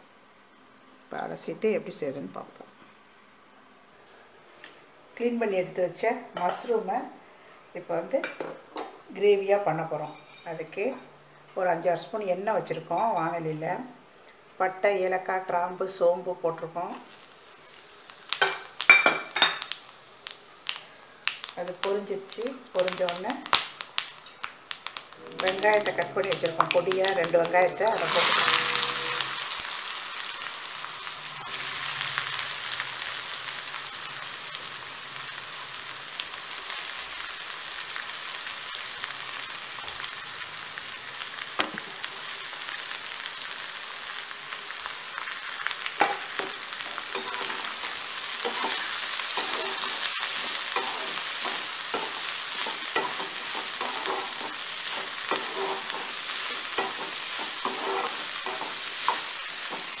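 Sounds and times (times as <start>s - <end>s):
onions sizzling in hot oil: 11.6s - 60.0s
spatula scraping a pan: 28.0s - 29.5s, 46.0s - 60.0s.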